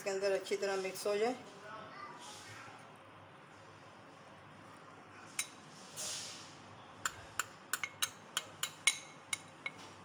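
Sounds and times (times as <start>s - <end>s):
spoon clinking against glass bowl: 5.4s - 5.6s, 7.0s - 9.8s.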